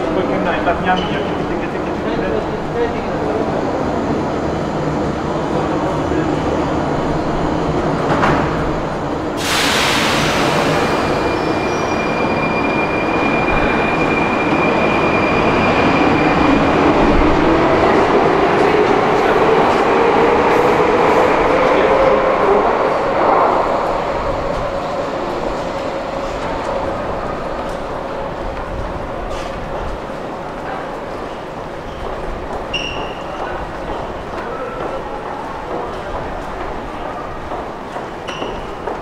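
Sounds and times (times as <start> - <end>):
metro train running: 0.0 - 39.0
loud hiss: 9.4 - 11.4.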